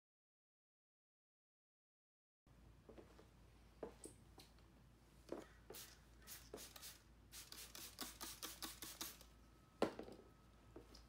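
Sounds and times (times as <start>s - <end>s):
spray bottle squirts hissing: 5.4s - 9.3s.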